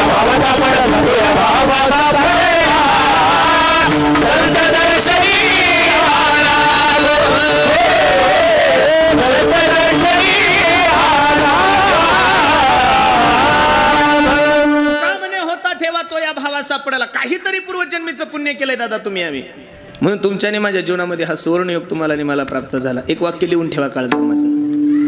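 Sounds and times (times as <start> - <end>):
held accompanying notes: 0.0 - 8.0, 24.1 - 25.0
men singing in unison: 0.0 - 15.2.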